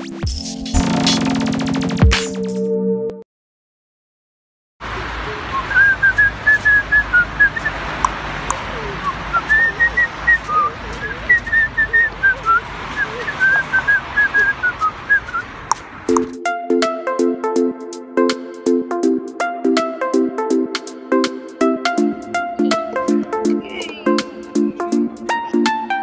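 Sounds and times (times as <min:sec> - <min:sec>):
man whistling a tune: 0:05.5 - 0:07.8, 0:09.0 - 0:15.5.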